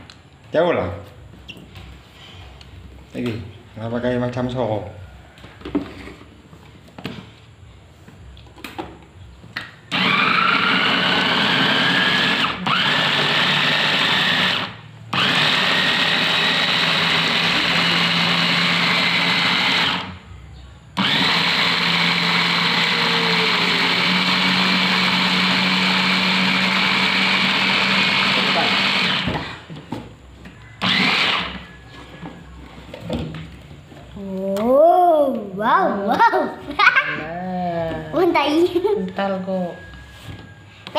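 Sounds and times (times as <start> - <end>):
blender motor whine: 9.9 - 20.2, 21.0 - 29.7, 30.8 - 31.8.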